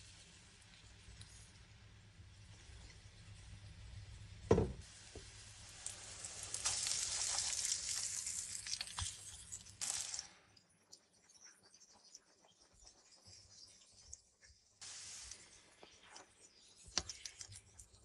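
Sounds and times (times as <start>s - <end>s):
spatula turning food in pan: 0.0s - 10.2s
fritters sizzling in hot oil: 0.0s - 10.4s, 11.3s - 18.0s
sharp knock: 4.5s - 4.8s.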